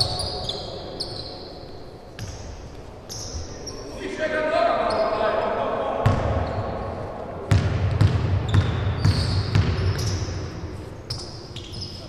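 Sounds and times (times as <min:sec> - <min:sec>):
basketball bouncing on hardwood floor: 0:07.5 - 0:10.2
short high squeaks: 0:11.1 - 0:12.0.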